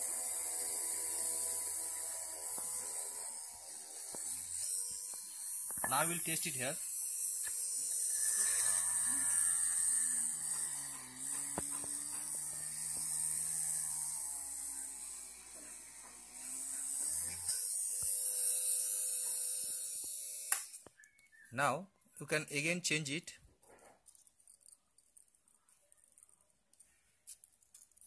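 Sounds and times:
small electric motor drilling wood: 0.0s - 21.0s.

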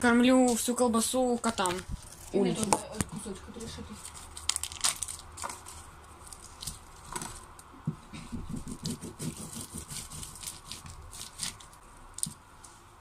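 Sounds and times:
plastic wrap crinkling: 1.0s - 7.8s, 9.9s - 12.4s
knife sawing sausage slices: 8.7s - 11.4s.

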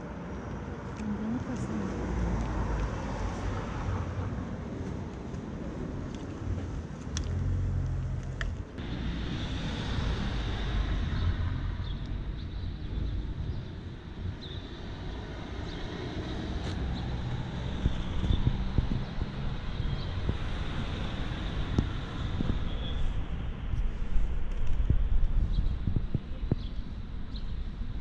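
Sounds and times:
car engines and tyres rumbling: 0.0s - 28.0s
wind buffeting microphone: 8.8s - 28.0s.

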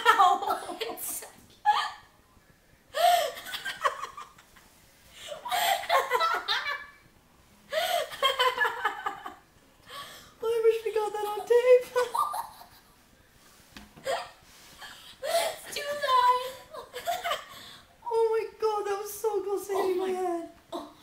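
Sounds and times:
girl laughing uncontrollably: 5.2s - 7.0s, 7.7s - 9.4s, 11.9s - 12.8s
girl gasping: 14.0s - 15.7s.

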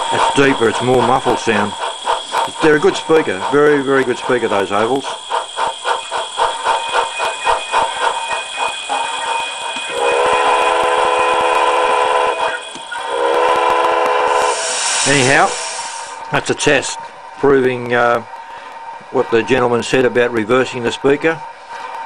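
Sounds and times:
multi-tone whistle blasts: 0.0s - 16.2s
locomotive exhaust beats: 0.0s - 22.0s.

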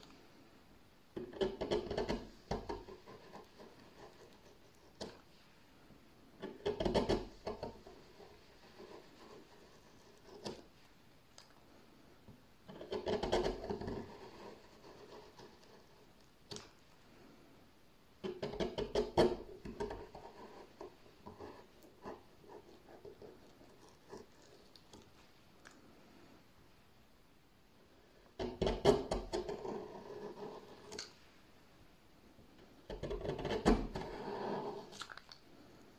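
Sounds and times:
gouge scraping wood: 6.4s - 10.7s, 12.7s - 16.1s, 18.4s - 24.8s, 28.4s - 31.0s, 32.9s - 35.0s.

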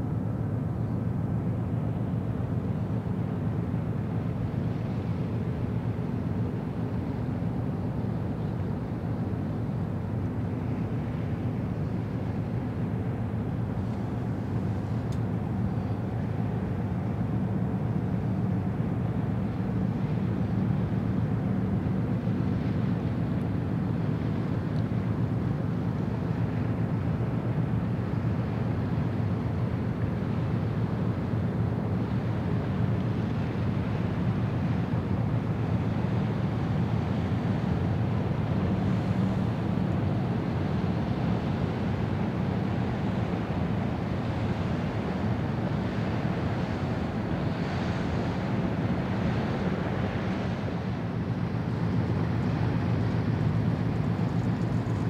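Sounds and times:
low waterfront ambience rumble: 0.0s - 55.0s.

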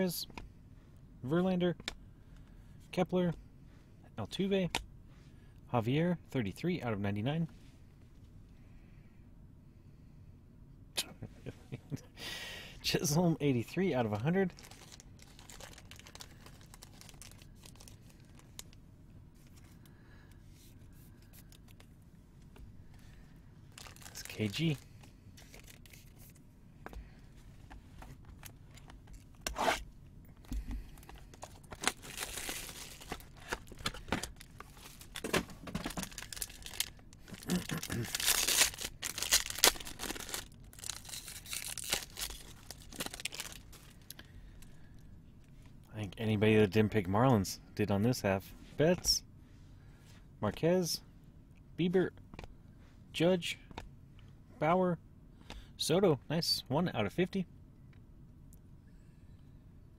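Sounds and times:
foil wrapper ripping: 14.5s - 18.6s, 23.7s - 24.8s, 31.4s - 35.3s, 35.9s - 44.0s
wrapper crinkling and rustling: 14.5s - 18.8s, 23.7s - 26.4s, 31.0s - 44.2s
trading cards being handled: 23.7s - 29.8s, 30.6s - 44.1s.

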